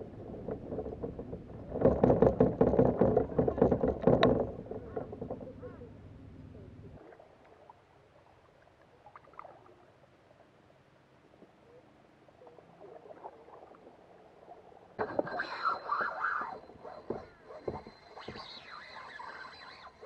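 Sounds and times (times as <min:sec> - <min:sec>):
water lapping against kayak hull: 0:00.0 - 0:10.4, 0:11.2 - 0:20.0
thin high whine: 0:15.0 - 0:20.0.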